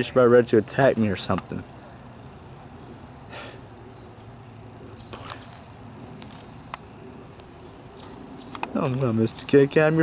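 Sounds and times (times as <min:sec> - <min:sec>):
small birds chirping: 0:00.0 - 0:10.0
steady outdoor hum: 0:00.0 - 0:10.0.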